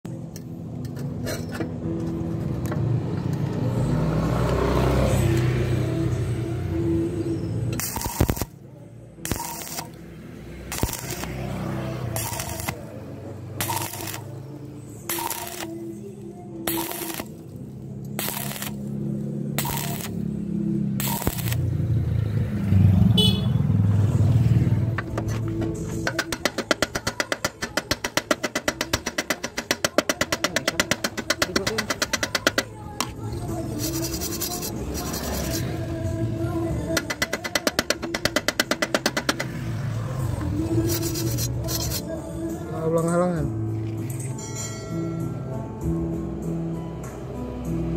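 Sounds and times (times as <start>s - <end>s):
welder hum: 7.7s - 8.6s, 9.3s - 12.9s, 13.6s - 15.8s, 16.7s - 19.0s, 19.6s - 20.2s, 21.0s - 21.8s
welding arc crackling: 7.8s - 8.6s, 9.3s - 10.0s, 10.6s - 11.5s, 12.1s - 12.9s, 13.6s - 14.4s, 15.1s - 15.7s, 16.7s - 17.5s, 18.2s - 18.9s, 19.6s - 20.2s, 21.0s - 21.7s.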